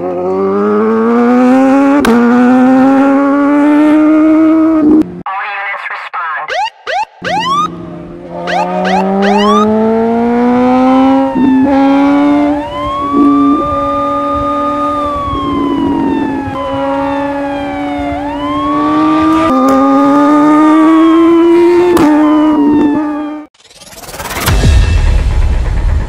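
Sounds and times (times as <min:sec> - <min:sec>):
motorcycle engine revving: 0:00.0 - 0:05.1, 0:07.2 - 0:23.5
siren wailing: 0:06.4 - 0:19.6, 0:20.7 - 0:23.5.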